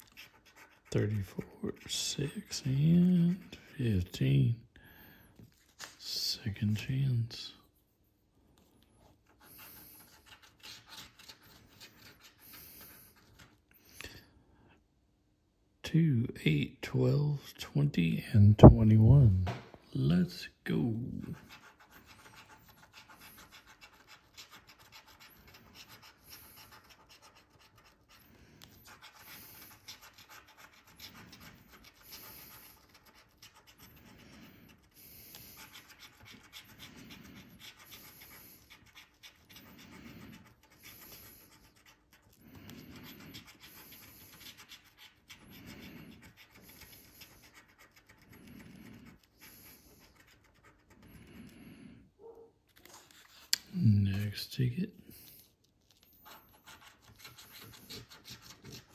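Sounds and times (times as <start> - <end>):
scratching lottery ticket: 0.0 - 4.2, 9.2 - 13.6, 20.7 - 51.8, 52.8 - 54.4, 55.2 - 58.9.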